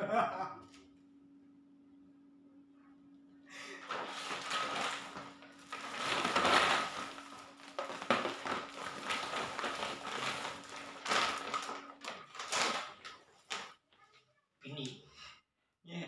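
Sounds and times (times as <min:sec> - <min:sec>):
plastic bag rustling and crinkling: 0:03.7 - 0:13.8.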